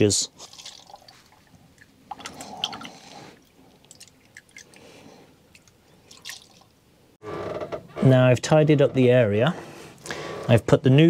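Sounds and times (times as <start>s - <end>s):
fuel trickling through funnel: 0.0s - 6.8s.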